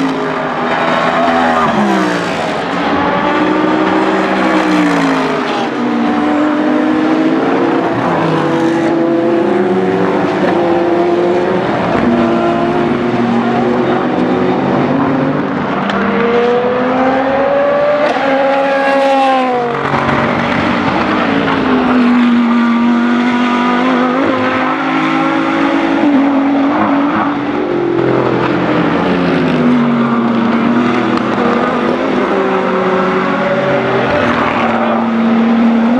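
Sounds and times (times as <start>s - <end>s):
race cars passing at speed: 0.0s - 35.9s.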